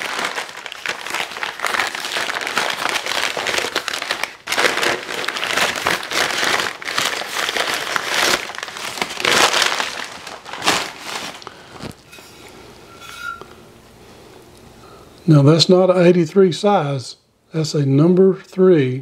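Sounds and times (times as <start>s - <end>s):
packing paper and bubble wrap crinkling: 0.0s - 12.1s.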